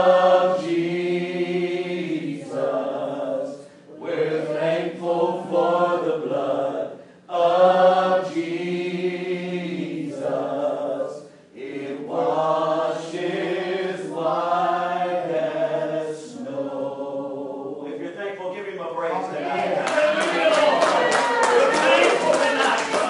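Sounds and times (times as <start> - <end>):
congregation singing: 0.0 - 18.1
singers breathing: 3.6 - 3.9, 7.0 - 7.3, 11.2 - 11.6.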